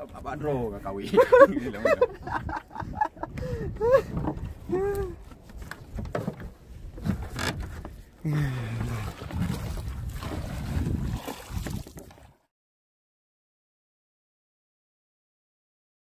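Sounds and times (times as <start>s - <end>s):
water noise: 0.0s - 12.5s
wind noise: 1.8s - 12.3s.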